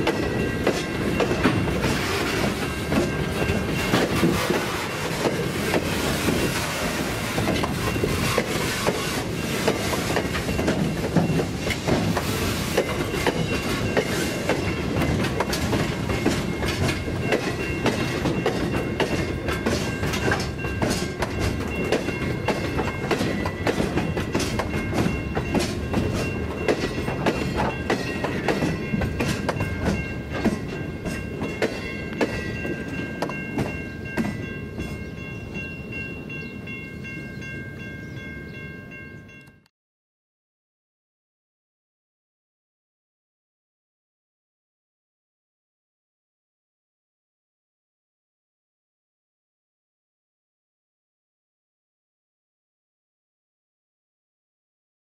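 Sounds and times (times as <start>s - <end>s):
train wheels clacking over rail joints: 0.0s - 35.0s.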